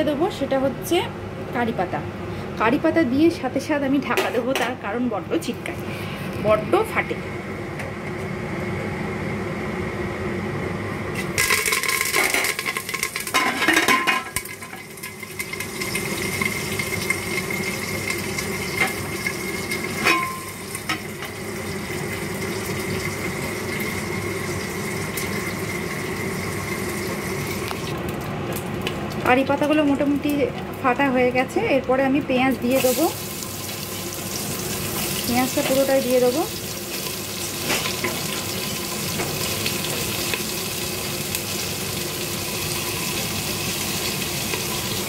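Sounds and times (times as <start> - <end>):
steady sizzle: 11.1 - 45.0
leaves spluttering in hot oil: 11.2 - 31.0, 31.6 - 45.0.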